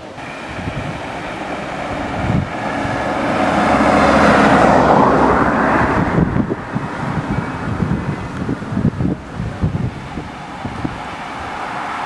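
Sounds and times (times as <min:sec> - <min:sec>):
van passing by: 0:00.0 - 0:12.0.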